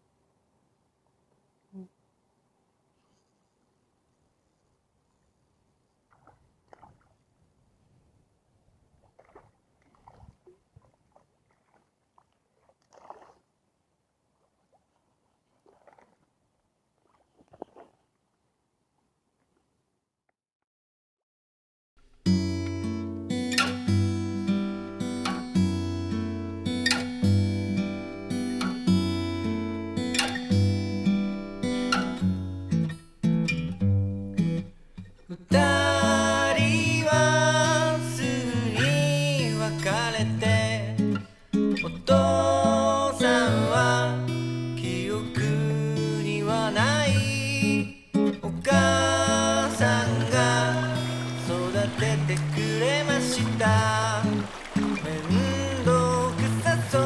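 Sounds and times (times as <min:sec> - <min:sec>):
fish splashing in water: 0:06.1 - 0:07.2, 0:09.0 - 0:13.5, 0:14.7 - 0:16.3, 0:17.0 - 0:18.0, 0:50.9 - 0:57.0
strummed acoustic guitar: 0:22.0 - 0:57.0
person singing: 0:35.3 - 0:41.2, 0:41.8 - 0:57.0.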